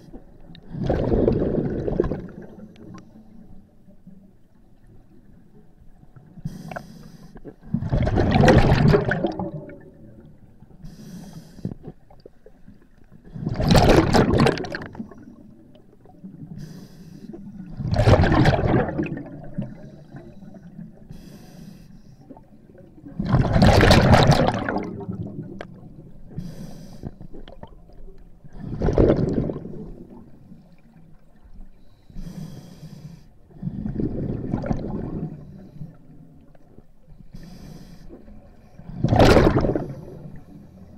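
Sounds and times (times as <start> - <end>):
bubbling exhalations underwater: 0.6 - 2.5, 7.7 - 10.0, 13.3 - 15.1, 17.7 - 19.8, 23.1 - 25.6, 28.5 - 30.2, 33.6 - 35.4, 38.9 - 40.1
regulator inhale hiss: 6.4 - 7.5, 10.8 - 11.8, 16.5 - 17.7, 19.8 - 22.4, 26.3 - 27.4, 31.8 - 33.5, 37.2 - 38.7.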